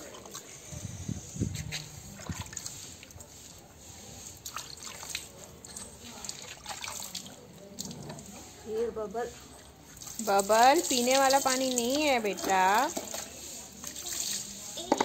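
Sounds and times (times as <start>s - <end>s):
water dripping onto concrete: 9.9s - 15.0s.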